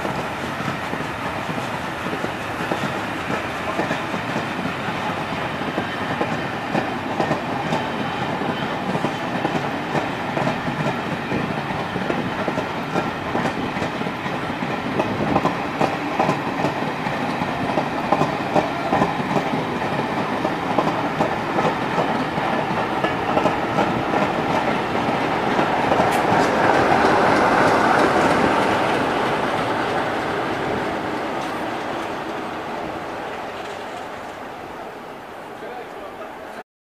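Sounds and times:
train wheels clattering over rail joints: 0.0s - 32.1s.

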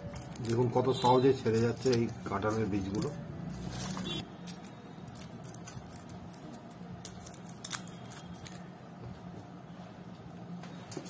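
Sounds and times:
seed shells cracking: 0.1s - 2.2s, 2.8s - 8.7s.

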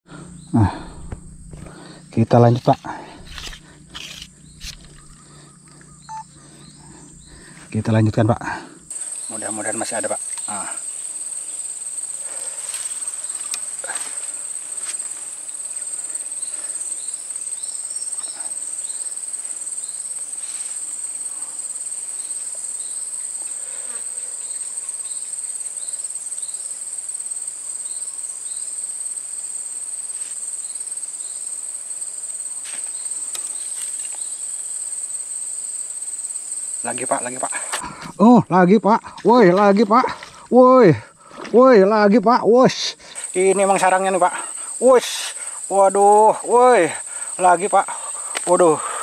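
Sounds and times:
high-pitched insect chorus: 0.0s - 49.0s
short chirps: 5.9s - 6.3s.

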